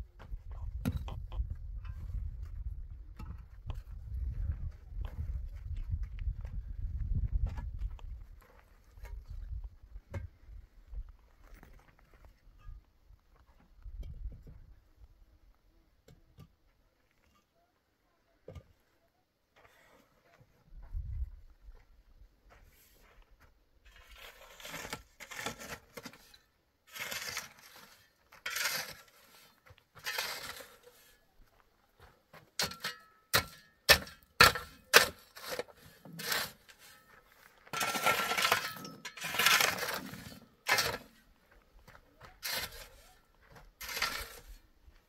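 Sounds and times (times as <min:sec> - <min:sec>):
shovel scraping stony soil: 0:23.8 - 0:31.4, 0:32.5 - 0:44.8.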